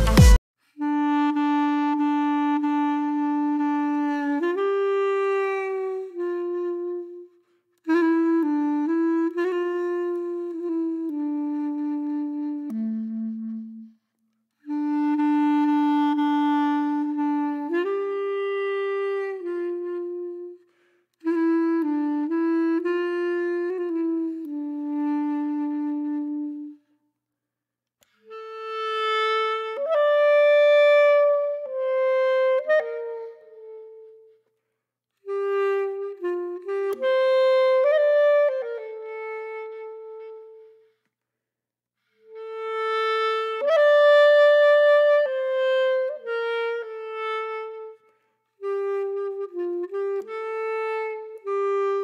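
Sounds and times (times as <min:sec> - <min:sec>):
slow reed wind instrument melody: 0:00.0 - 0:26.9, 0:28.0 - 0:34.6, 0:35.2 - 0:41.0, 0:42.0 - 0:52.0.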